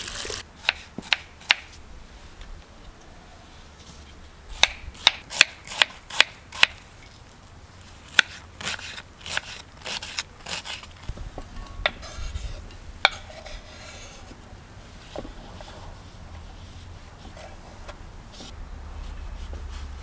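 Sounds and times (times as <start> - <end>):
knife scraping board: 11.9 - 14.4.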